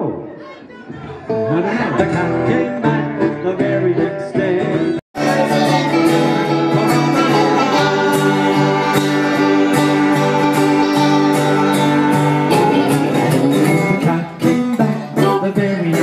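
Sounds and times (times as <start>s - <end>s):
electric guitar: 1.3s - 16.0s
banjo: 1.4s - 16.0s
strummed acoustic guitar: 1.4s - 16.0s
folk band playing: 1.9s - 16.0s
accordion: 4.4s - 14.3s.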